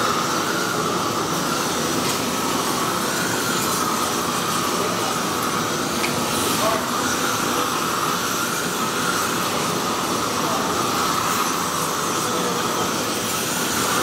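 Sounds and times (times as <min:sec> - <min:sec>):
furnaces and burners roaring: 0:00.0 - 0:14.0
ventilation fans: 0:00.0 - 0:14.0.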